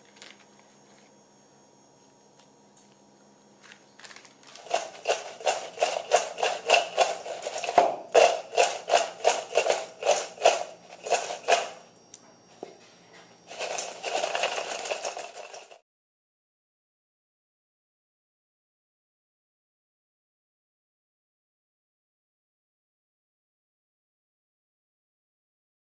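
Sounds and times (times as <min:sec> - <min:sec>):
fries rattling in metal bowl: 0:04.0 - 0:11.8, 0:13.5 - 0:15.8.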